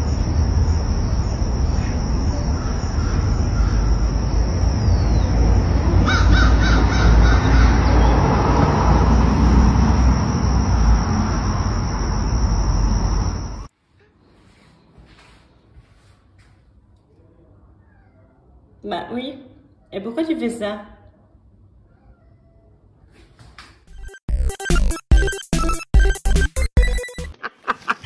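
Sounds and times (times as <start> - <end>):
thin high whine: 0.0 - 6.0, 8.0 - 14.5
low street rumble: 0.0 - 14.4
harsh bird calls: 1.7 - 8.6.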